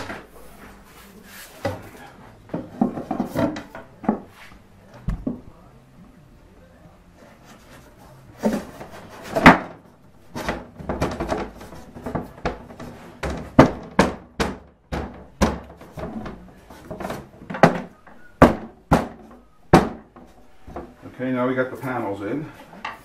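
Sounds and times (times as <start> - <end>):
hand thumping wooden panel: 10.4 - 16.4, 17.0 - 20.3.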